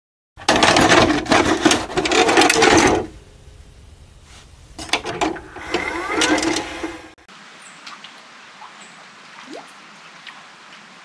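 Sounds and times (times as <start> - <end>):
tape loading mechanism whirring: 0.4 - 3.2, 4.8 - 7.2
machine clicks: 4.8 - 7.0.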